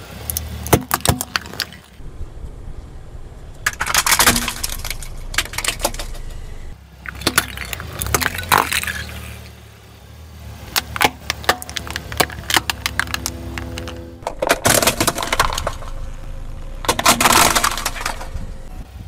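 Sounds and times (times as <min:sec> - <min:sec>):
low steady rumble: 0:00.0 - 0:19.0
plastic toys cracking under tyre: 0:03.6 - 0:06.5, 0:07.1 - 0:09.4, 0:10.7 - 0:16.1, 0:16.8 - 0:18.4.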